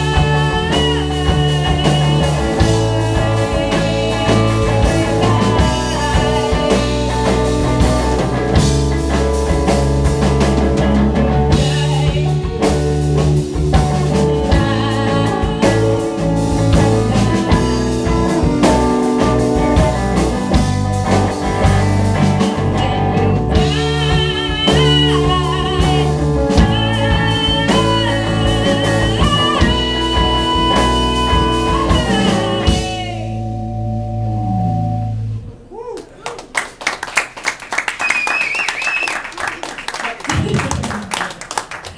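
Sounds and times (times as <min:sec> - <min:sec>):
woman singing into a microphone: 0:00.0 - 0:07.9, 0:11.4 - 0:19.4, 0:22.6 - 0:33.5
electric guitar: 0:00.0 - 0:35.8
electric bass: 0:00.0 - 0:36.2
low held note ringing: 0:33.1 - 0:35.8.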